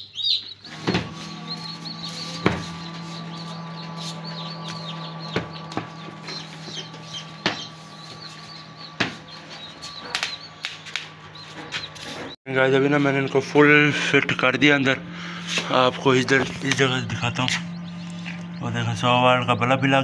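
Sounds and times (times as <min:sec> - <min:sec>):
chicks peeping: 0:00.0 - 0:14.1, 0:15.0 - 0:20.0
low hum: 0:00.7 - 0:20.0
sharp knocks: 0:00.8 - 0:12.3.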